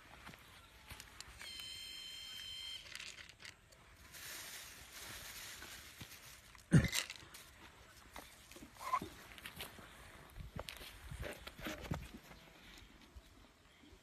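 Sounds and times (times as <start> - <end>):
high steady tone: 1.4 - 2.9
handling noise and rustling: 2.4 - 13.2.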